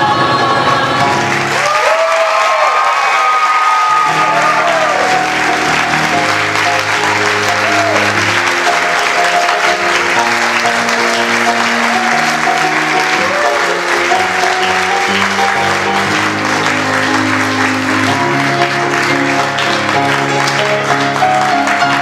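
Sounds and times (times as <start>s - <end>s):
audience applauding: 1.0s - 22.0s
instrumental music: 3.9s - 22.0s.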